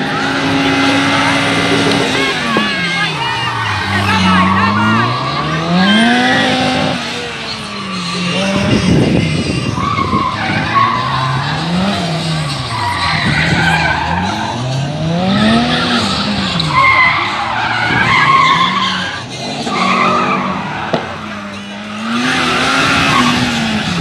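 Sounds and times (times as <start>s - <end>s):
car engine revving: 0.0s - 24.0s
tyres squealing: 0.0s - 24.0s.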